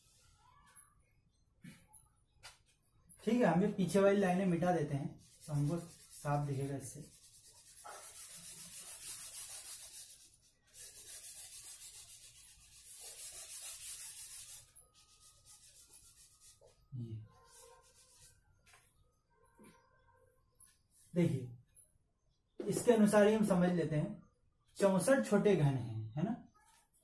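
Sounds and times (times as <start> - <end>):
eraser rubbing on whiteboard: 5.2 - 18.8.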